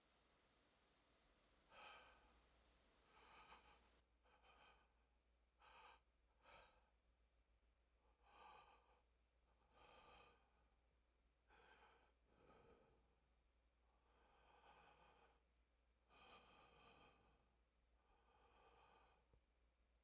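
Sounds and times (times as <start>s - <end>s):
person breathing softly: 1.1s - 7.0s, 8.0s - 10.8s, 11.4s - 19.5s.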